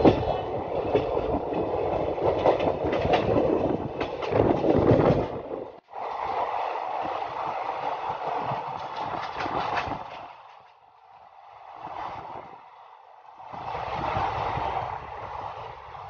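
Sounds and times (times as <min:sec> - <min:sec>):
train wheel clicks: 0:00.0 - 0:05.6, 0:07.8 - 0:11.1
train coaches rushing: 0:00.0 - 0:16.0.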